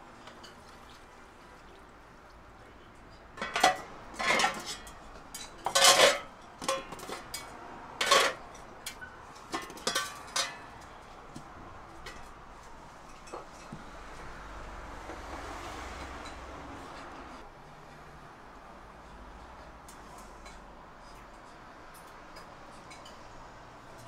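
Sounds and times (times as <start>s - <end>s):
dishes and utensils clattering: 2.9s - 13.9s, 15.2s - 17.4s, 20.4s - 24.0s.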